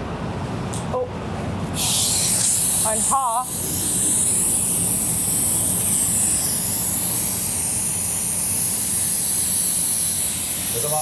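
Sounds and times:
compressed air hissing: 1.7s - 11.0s.

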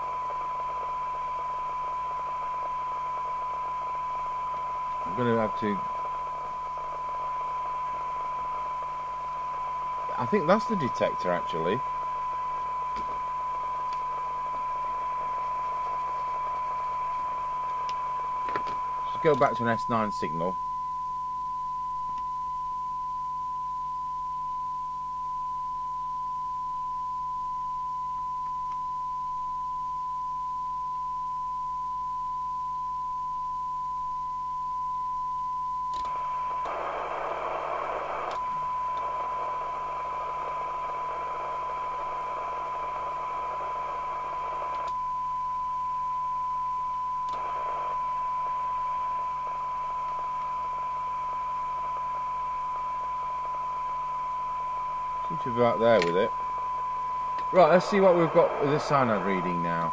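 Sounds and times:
radio hiss: 0.0s - 20.6s, 36.0s - 45.0s, 47.1s - 59.9s
radio test tone: 0.0s - 59.9s.

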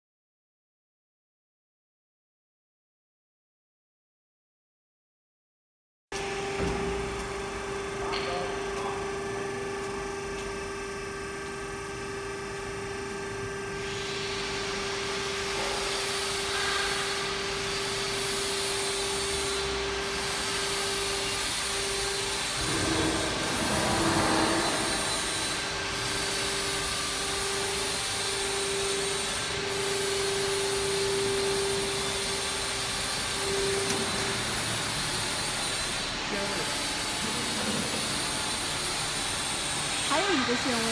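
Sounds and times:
hydraulic power unit whine: 6.2s - 40.9s
hydraulic hiss: 15.5s - 40.9s.

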